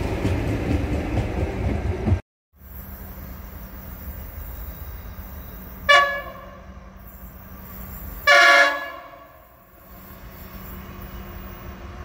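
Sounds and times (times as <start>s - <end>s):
low steady train rumble: 0.0s - 12.0s
locomotive horn blasts: 5.9s - 6.7s, 8.3s - 9.6s.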